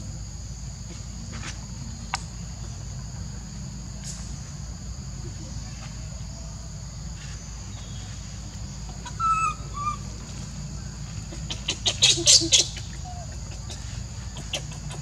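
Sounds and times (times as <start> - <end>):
high insect drone: 0.0 - 15.0
rapid harsh animal calls: 9.0 - 10.1, 11.3 - 15.0.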